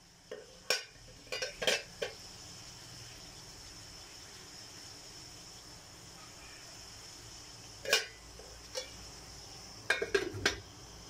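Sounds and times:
faint background hiss: 0.0s - 11.0s
kitchenware clatter: 0.3s - 2.2s, 7.8s - 9.0s, 9.9s - 10.7s.

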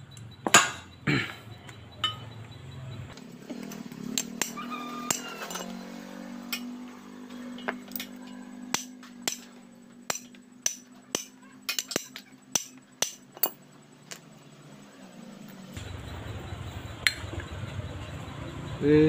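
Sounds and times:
metallic clinks of tools: 1.5s - 2.5s, 3.6s - 14.3s
short metallic rings: 1.9s - 2.4s, 3.6s - 14.3s.

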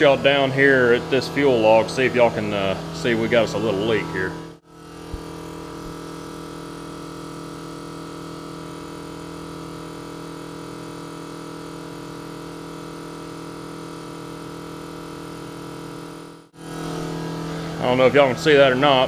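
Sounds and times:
electric fuel pump humming: 0.0s - 19.0s.

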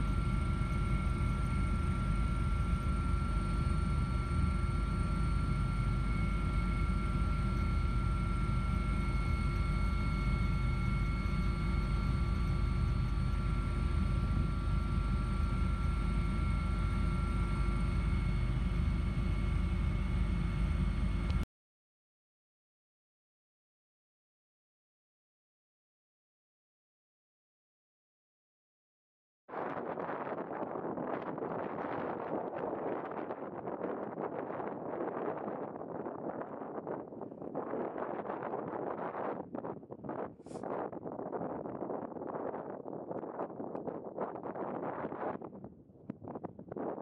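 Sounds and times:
wind rumble on microphone: 29.5s - 47.0s.

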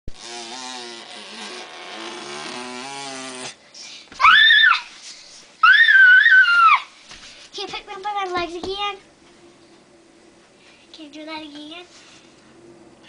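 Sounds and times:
girl shrieking: 4.2s - 5.0s, 5.6s - 7.0s.

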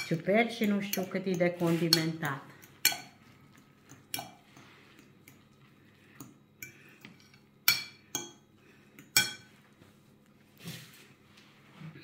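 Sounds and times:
utensil scraping metal bowl: 0.0s - 5.1s.

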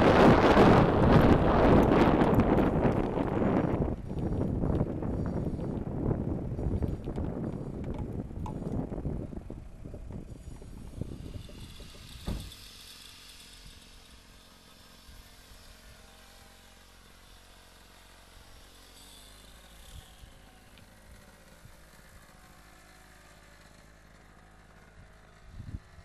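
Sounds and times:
wind buffeting microphone: 0.0s - 12.7s, 25.4s - 26.0s
small engine running: 0.0s - 26.0s
thump: 12.2s - 12.6s.

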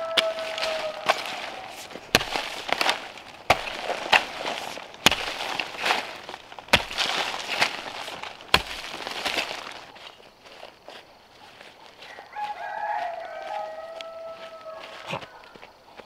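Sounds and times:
hoe chopping into soil: 0.0s - 10.0s
earth scraping: 0.0s - 16.0s.

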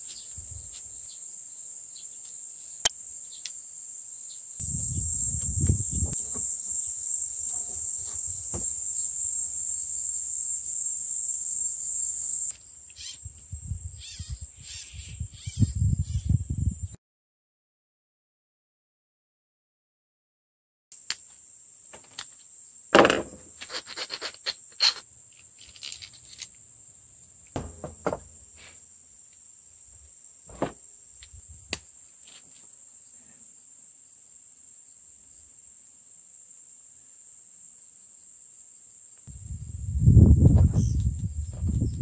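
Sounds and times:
high-pitched insect drone: 0.2s - 16.9s
plastic parts clicking and knocking: 27.6s - 28.4s.

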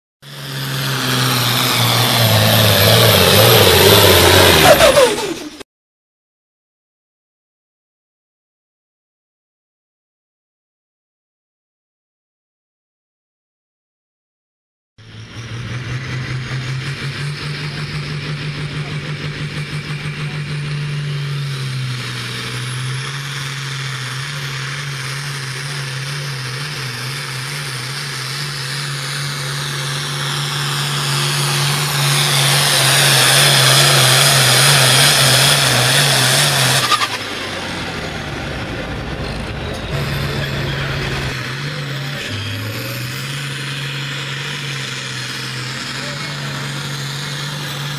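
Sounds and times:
diesel tractor engines under load: 0.2s - 5.6s, 15.0s - 47.9s
high whine sliding down: 0.3s - 5.6s, 28.6s - 42.7s.

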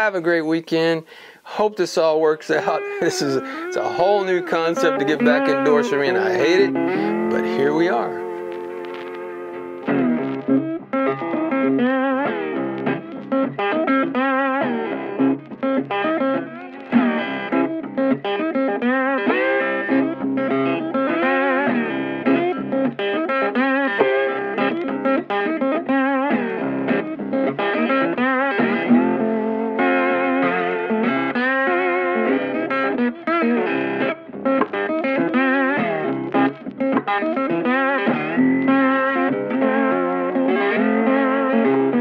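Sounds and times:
instrumental guitar music: 0.0s - 42.0s.

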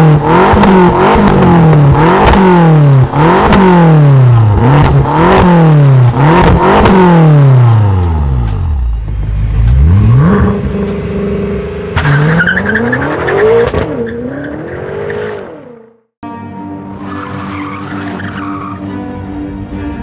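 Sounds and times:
car engine revving: 0.0s - 16.1s
music with a steady beat: 0.2s - 11.3s.

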